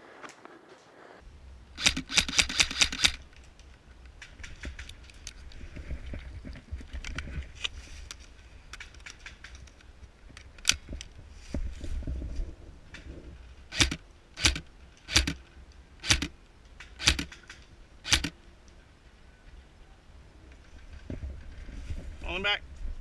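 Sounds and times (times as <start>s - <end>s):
airsoft rifle shots: 1.8s - 3.2s, 13.7s - 15.4s, 17.0s - 18.3s
low rumble of movement: 3.1s - 23.0s.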